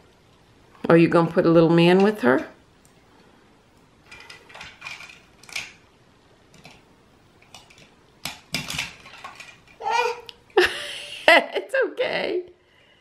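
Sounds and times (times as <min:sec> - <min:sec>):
plastic toy bricks clicking: 0:04.1 - 0:05.8, 0:07.4 - 0:09.8.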